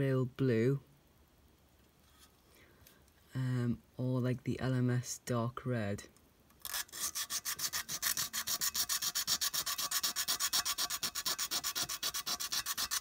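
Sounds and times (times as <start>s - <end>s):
sandpaper rubbing on sheet metal: 6.7s - 13.0s.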